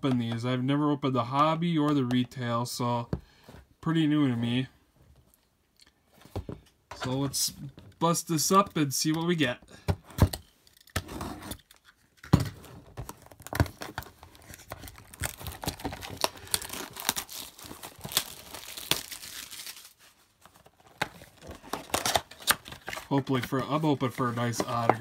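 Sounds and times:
plastic shrink wrap crinkling: 0:13.0 - 0:25.0.

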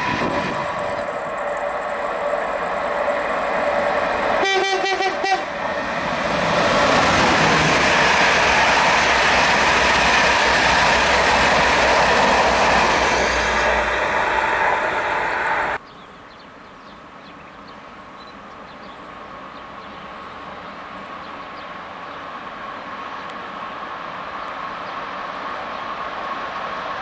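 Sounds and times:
train passing with wheel rush: 0:00.0 - 0:27.0
train horn blast: 0:04.4 - 0:05.7.

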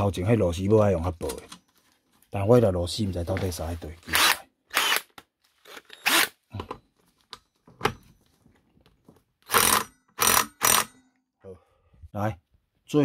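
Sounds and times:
impact wrench bursts: 0:04.1 - 0:05.1, 0:05.7 - 0:06.4, 0:09.4 - 0:11.0.

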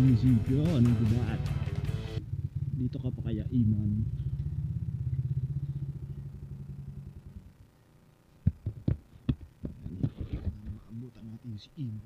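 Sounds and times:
scooter engine idling: 0:00.0 - 0:07.8.

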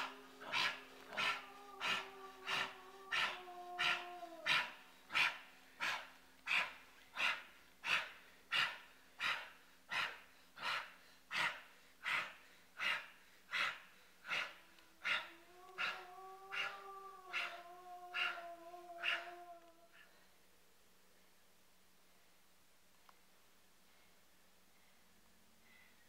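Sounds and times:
low hum with sliding tones: 0:00.0 - 0:07.8
person panting: 0:00.0 - 0:15.3.

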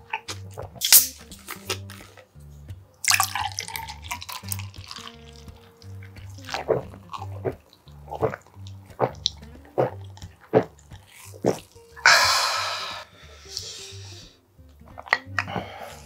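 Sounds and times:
gulping fizzy drink: 0:03.1 - 0:13.6
breathy exhale: 0:12.0 - 0:14.4, 0:15.5 - 0:16.0.

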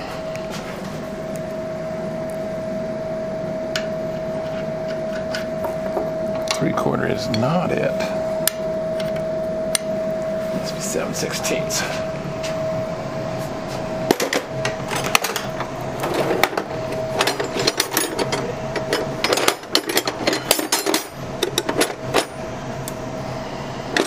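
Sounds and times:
faint steady hum: 0:00.0 - 0:24.0
wrenches clinking in toolbox drawer: 0:17.2 - 0:22.4.

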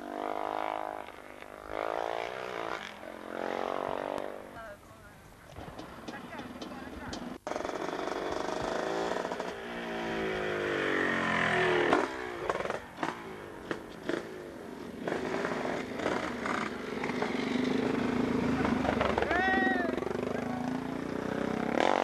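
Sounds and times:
motorcycle revving hard: 0:00.0 - 0:04.6, 0:07.0 - 0:22.0
steady engine sound: 0:06.0 - 0:22.0.

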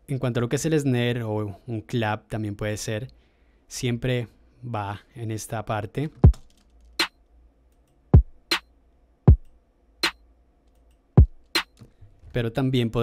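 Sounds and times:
electronic kick drum thumping: 0:08.2 - 0:08.6, 0:09.3 - 0:10.2, 0:11.2 - 0:11.7
snare hits: 0:11.6 - 0:11.8.

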